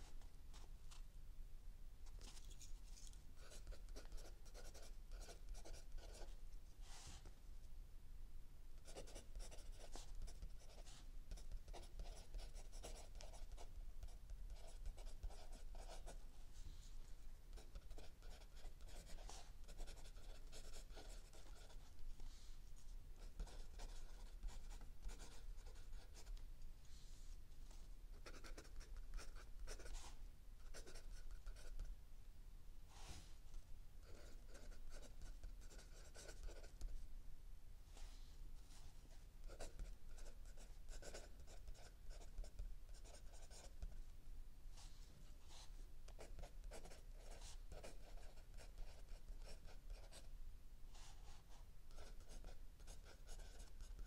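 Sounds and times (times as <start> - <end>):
pencil scratching on paper: 3.4 - 7.3, 8.8 - 16.2, 17.5 - 21.9, 23.2 - 26.4, 28.2 - 31.8, 34.0 - 36.8, 39.4 - 43.8, 45.5 - 50.3, 52.0 - 54.0.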